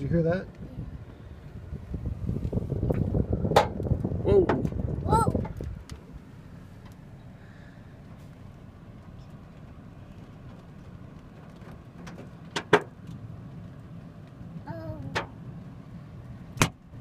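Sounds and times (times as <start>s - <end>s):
hailstones banging on car: 10.4s - 13.2s.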